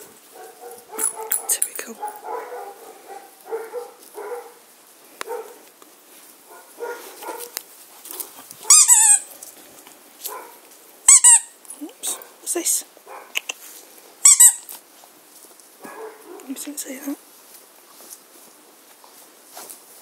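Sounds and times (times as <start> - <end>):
puppies yapping: 0.0 - 5.6, 6.5 - 9.4, 13.1 - 13.6, 14.2 - 14.8, 15.8 - 16.6.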